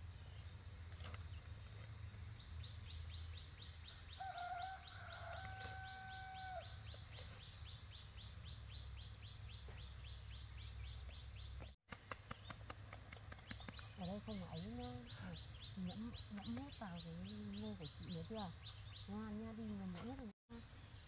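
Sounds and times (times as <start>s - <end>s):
rooster crowing: 4.2s - 6.8s.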